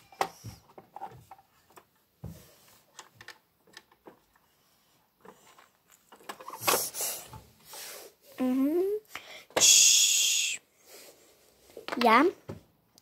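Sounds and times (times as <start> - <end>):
plastic toy clicks and knocks: 2.9 - 4.4, 5.2 - 7.2.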